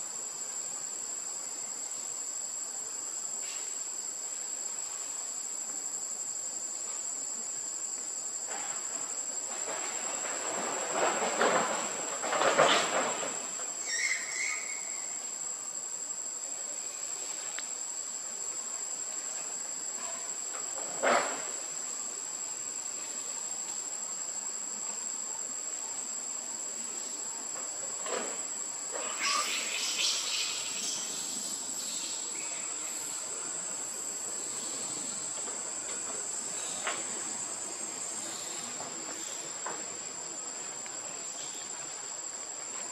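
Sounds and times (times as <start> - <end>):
shrill insect drone: 13.8 - 15.4, 28.9 - 39.6.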